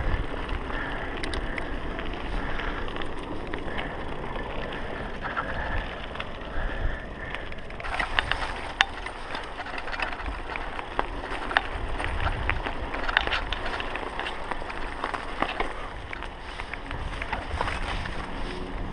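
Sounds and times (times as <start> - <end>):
bike rattling clicks and knocks: 0.0 - 18.9
bike tyres rumbling on dirt: 0.0 - 18.9.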